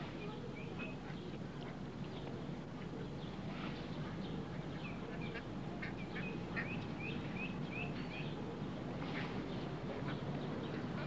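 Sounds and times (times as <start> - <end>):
low background hum and hiss: 0.0 - 11.0
bird chirping: 3.0 - 8.4.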